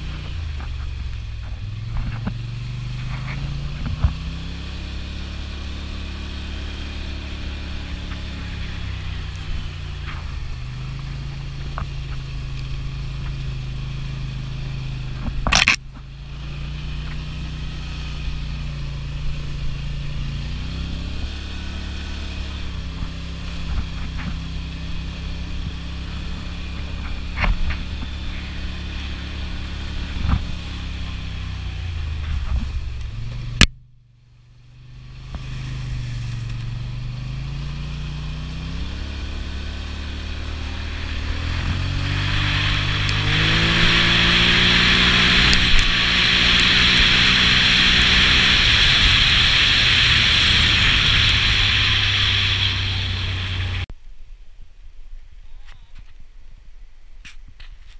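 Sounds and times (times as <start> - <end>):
atv engine running: 0.0 - 53.9.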